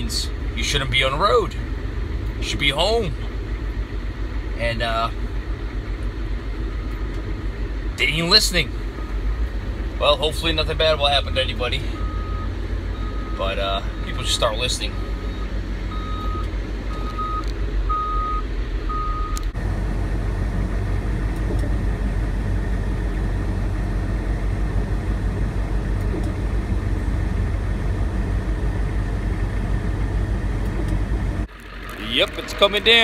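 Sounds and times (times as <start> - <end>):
truck engine running: 0.0 - 33.0
backup alarm beeping: 12.0 - 14.3, 14.9 - 19.4.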